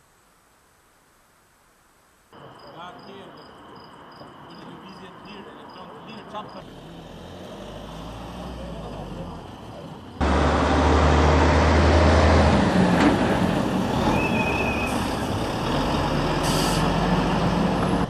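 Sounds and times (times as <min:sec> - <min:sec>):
heavy vehicles passing: 0:04.3 - 0:18.0.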